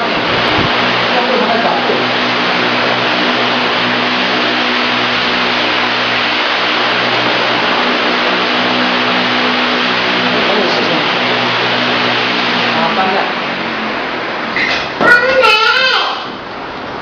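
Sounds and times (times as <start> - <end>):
fan rush of air: 0.0 - 17.0
low motor hum: 0.0 - 17.0.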